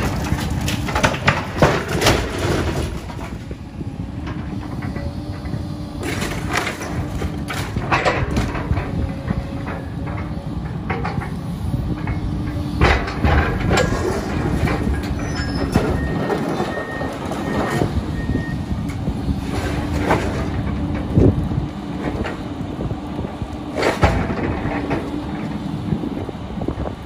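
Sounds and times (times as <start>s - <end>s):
crashes and clanks of metal debris: 0.0s - 3.6s, 6.0s - 11.3s, 12.8s - 17.9s, 23.8s - 25.1s
hydraulic excavator running: 0.0s - 27.0s.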